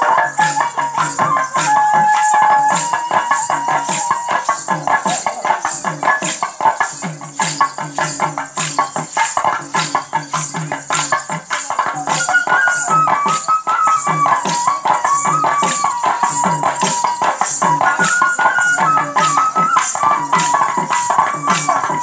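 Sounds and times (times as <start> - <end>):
jingling: 0.0 - 22.0
held melody: 9.8 - 22.0.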